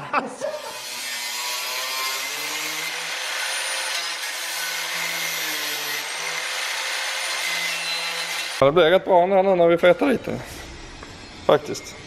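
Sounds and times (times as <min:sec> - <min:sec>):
angle grinder cutting metal: 0:00.4 - 0:08.6.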